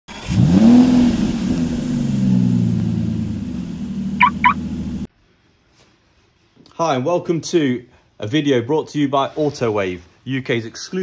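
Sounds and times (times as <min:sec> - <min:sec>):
car engine revving: 0:00.1 - 0:05.1
short high chirps: 0:04.2 - 0:04.6.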